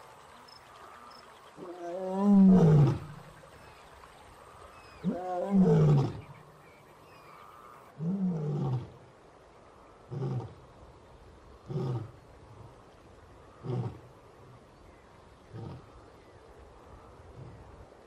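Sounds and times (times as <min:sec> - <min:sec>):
lion roaring: 0:01.6 - 0:03.2.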